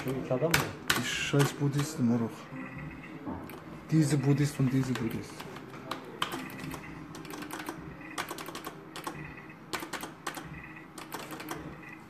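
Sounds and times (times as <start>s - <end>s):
faint electronic beeps: 2.3s - 5.2s, 6.3s - 12.0s.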